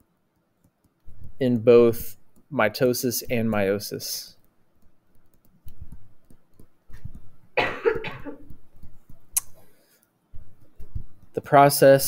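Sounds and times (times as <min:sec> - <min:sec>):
stylus tapping touchscreen: 0:00.4 - 0:11.7
person coughing: 0:07.6 - 0:08.5.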